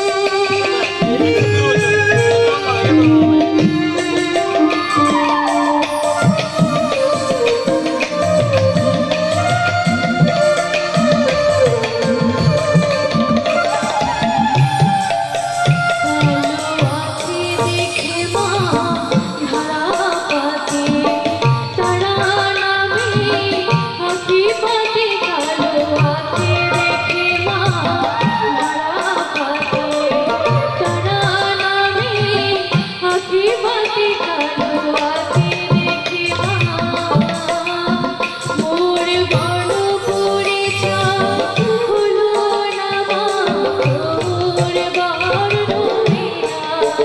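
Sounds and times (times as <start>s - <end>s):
harmonium: 0.0s - 47.0s
keyboard: 0.0s - 47.0s
woman singing: 0.0s - 47.0s
bamboo flute: 0.2s - 17.8s.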